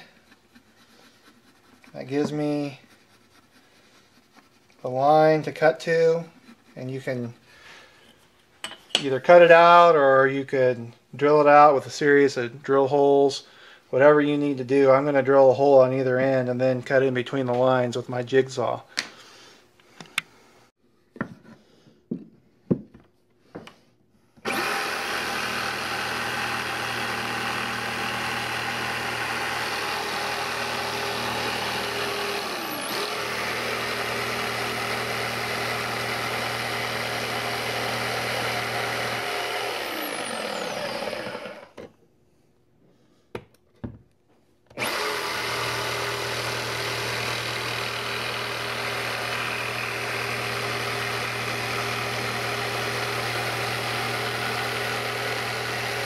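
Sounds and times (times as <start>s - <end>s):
jigsaw cutting plywood: 24.4s - 41.9s, 44.7s - 56.0s.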